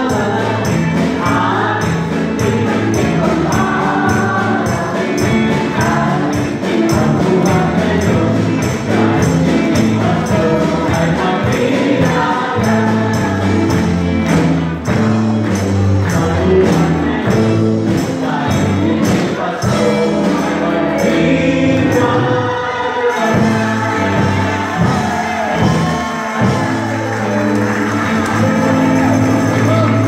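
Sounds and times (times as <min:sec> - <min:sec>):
instrumental music with beat: 0:00.0 - 0:22.3
group singing: 0:00.0 - 0:30.0.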